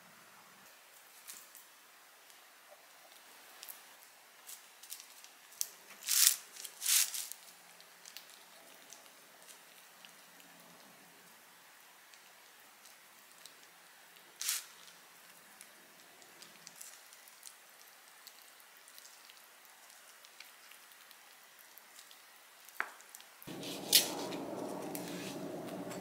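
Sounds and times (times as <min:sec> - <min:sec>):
low background noise: 0:00.0 - 0:26.0
wet squishing of hands rolling meat: 0:02.2 - 0:25.8.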